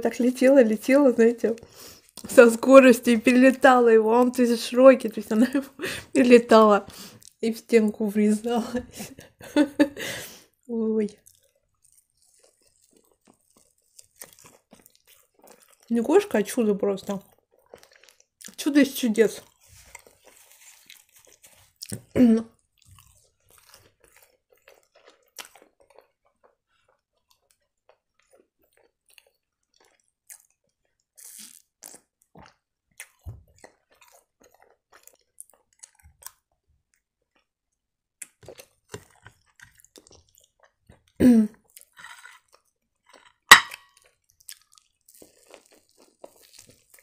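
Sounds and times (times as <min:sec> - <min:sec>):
person chewing with wet clicks: 0:07.0 - 0:07.4, 0:11.0 - 0:16.1, 0:17.0 - 0:18.6, 0:19.4 - 0:43.2, 0:43.8 - 0:47.0.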